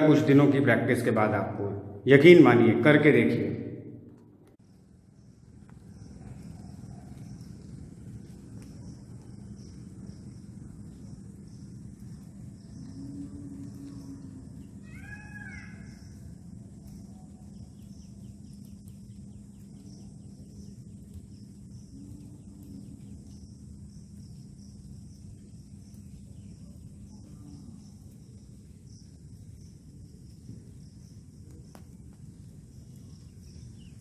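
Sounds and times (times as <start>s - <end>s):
low steady hum: 0.7s - 34.0s
insect chirr: 4.6s - 34.0s
crow-like bird call: 13.7s - 16.2s.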